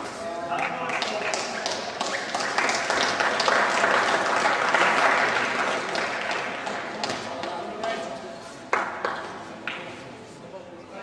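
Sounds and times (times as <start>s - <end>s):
spectators applauding: 0.6s - 7.2s.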